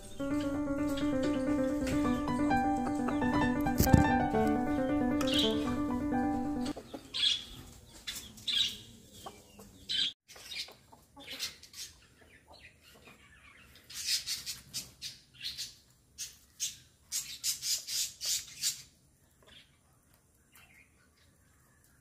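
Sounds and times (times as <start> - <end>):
chickens clucking: 0.0 - 15.0
chicks chirping: 0.0 - 15.8.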